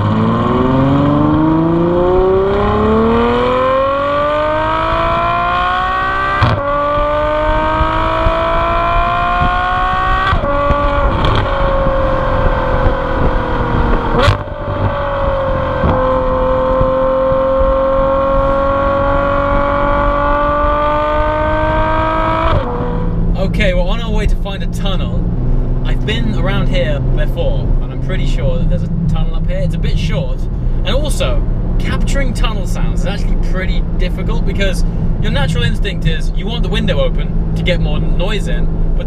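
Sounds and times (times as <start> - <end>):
car engine revving through gears: 0.0 - 23.4.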